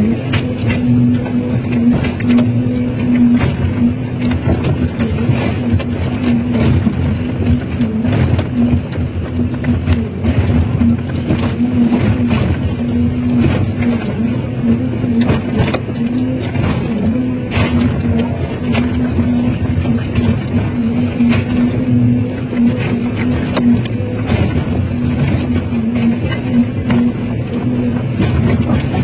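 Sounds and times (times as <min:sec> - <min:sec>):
excavator engine drone: 0:00.0 - 0:29.0.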